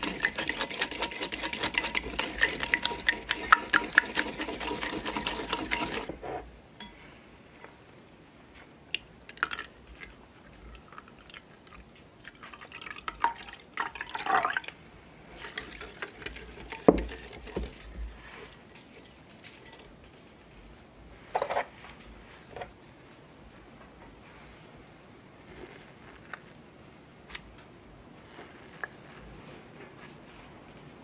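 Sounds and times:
milk pouring into a bowl: 0.0s - 6.1s, 9.3s - 19.9s
whisk beating eggs in a bowl: 0.0s - 6.2s, 15.4s - 19.9s.

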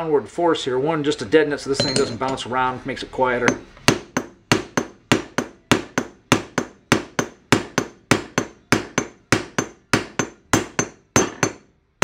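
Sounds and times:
hammer striking metal driver: 3.4s - 11.7s.

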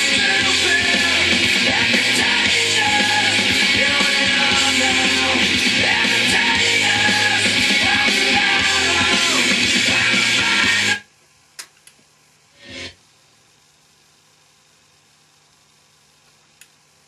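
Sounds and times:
rock song with singing: 0.0s - 11.0s.

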